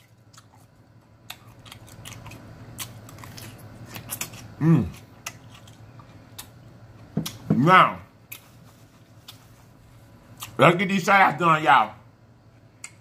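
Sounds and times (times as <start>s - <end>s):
chewing crunchy salad: 0.0s - 7.5s, 8.2s - 10.6s
person humming mmm: 4.6s - 5.0s.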